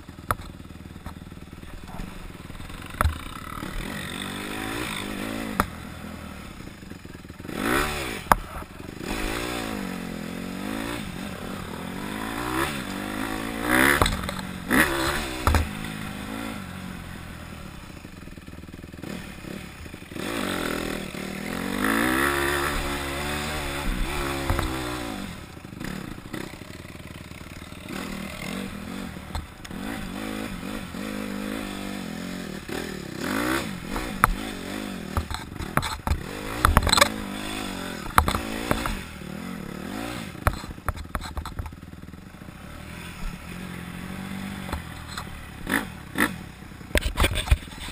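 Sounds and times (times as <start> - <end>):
dirt bike engine revving: 0.0 - 47.9
knocks over rough ground: 15.1 - 15.9.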